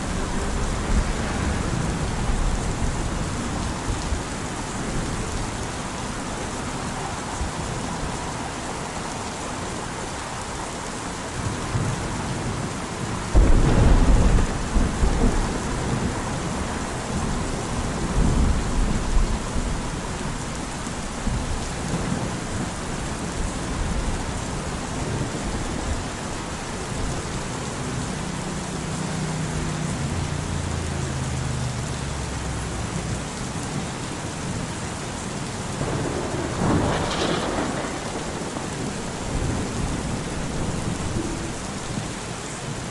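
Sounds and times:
steady rain: 0.0 - 42.9
thunder rumbling: 11.4 - 20.5, 35.6 - 42.1.

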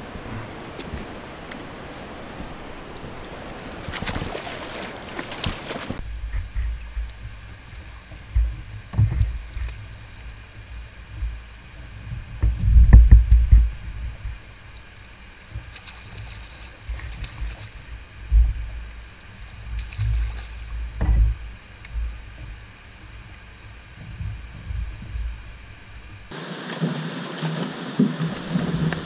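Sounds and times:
thumps on plastic kayak: 20.9 - 21.4.

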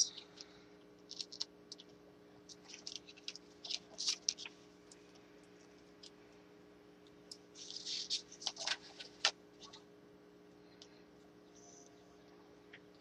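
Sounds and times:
paper clicks and crinkles: 0.0 - 6.2, 7.3 - 9.8.

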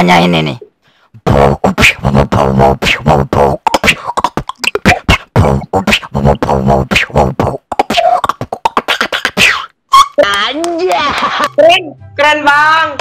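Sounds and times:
man beatboxing: 1.2 - 9.8.

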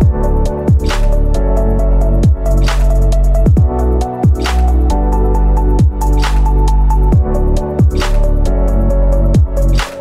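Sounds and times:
deep sliding bass: 0.0 - 10.0
synth chords: 0.0 - 10.0
snare-like hit: 9.8 - 10.0.

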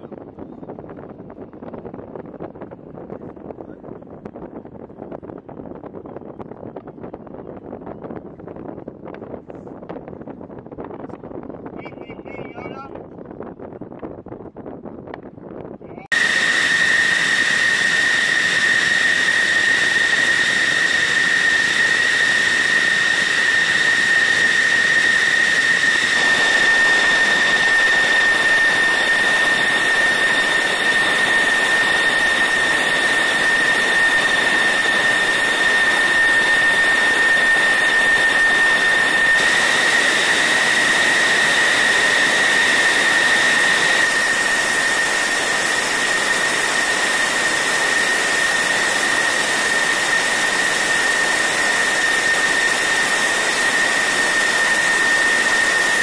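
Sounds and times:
jet engine idling whine: 15.9 - 56.0.

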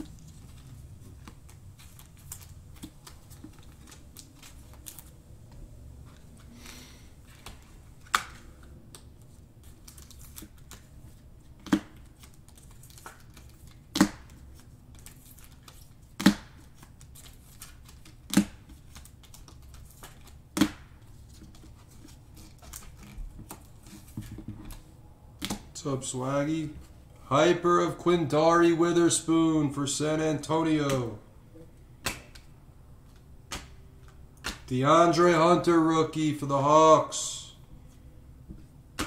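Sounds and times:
sharp clicks of plastic packaging: 0.0 - 5.2, 7.3 - 24.8
faint rustling of packaging: 0.0 - 20.4, 21.0 - 27.2.

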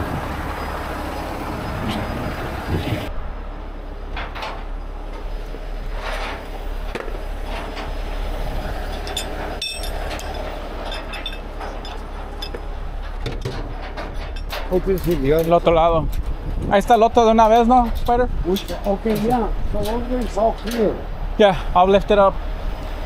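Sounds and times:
diesel engine idling: 0.0 - 13.9
metallic clinks of shackles: 8.9 - 16.3, 17.4 - 21.0.

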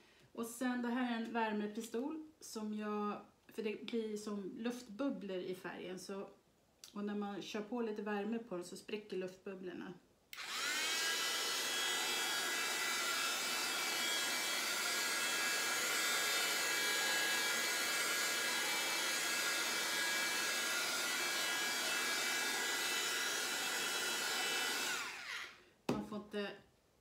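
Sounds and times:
heat gun fan whining: 10.4 - 25.6.

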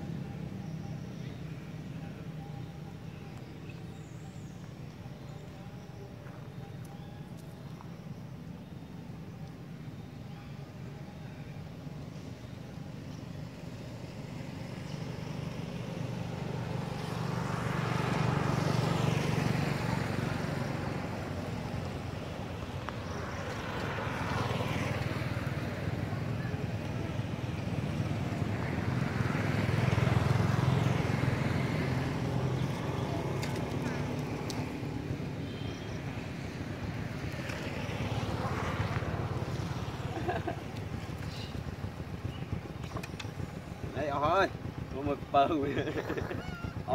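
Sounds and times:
passing vehicle: 12.1 - 46.9
wind buffeting microphone: 39.0 - 46.9.

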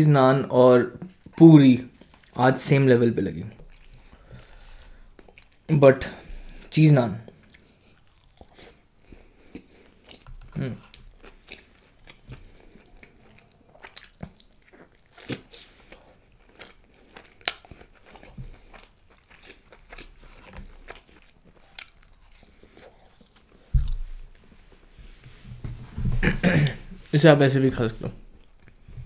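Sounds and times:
wet chewing: 3.5 - 5.7, 6.3 - 24.1.

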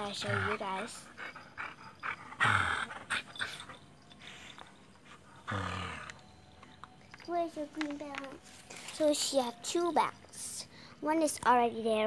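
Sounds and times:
dogs play-growling: 0.0 - 6.3.

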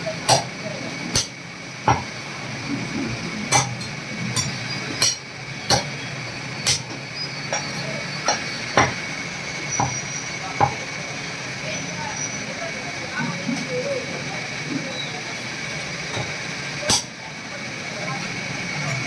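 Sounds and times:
cleaver chopping on wooden block: 0.3 - 0.5, 1.9 - 2.1, 4.4 - 5.9.

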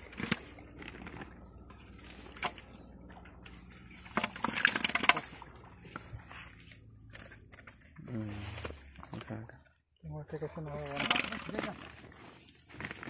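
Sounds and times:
fish slapping and clattering: 0.0 - 9.4.

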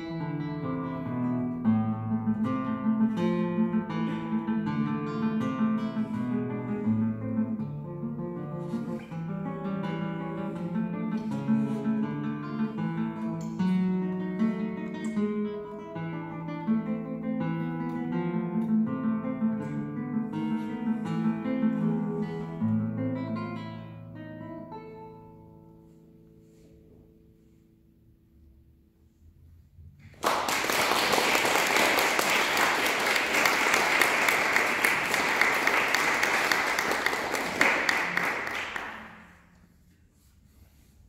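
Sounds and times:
classical guitar notes ringing: 0.0 - 26.4
audience applause: 30.1 - 39.4.

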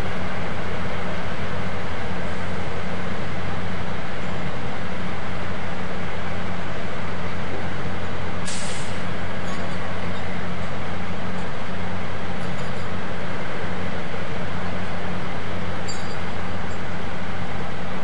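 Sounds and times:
diesel engines running: 0.0 - 18.0
short hiss: 8.5 - 9.0.

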